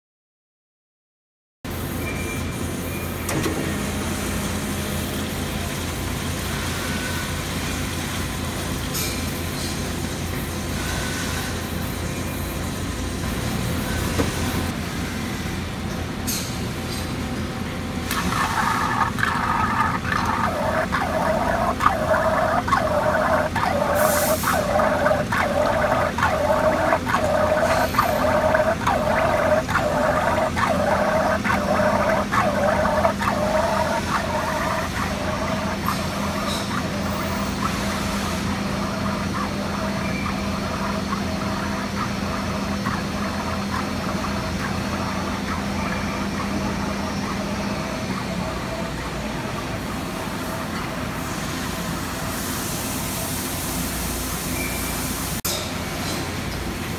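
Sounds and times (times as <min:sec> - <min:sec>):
steady machine noise: 0:17.8 - 0:52.4
fluid gurgling: 0:18.2 - 0:38.0
regular pulsing: 0:18.7 - 0:36.4.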